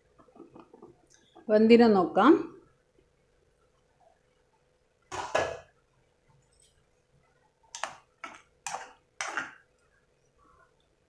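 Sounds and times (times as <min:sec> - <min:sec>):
spoon scraping and knocking a pan: 0:07.7 - 0:09.6.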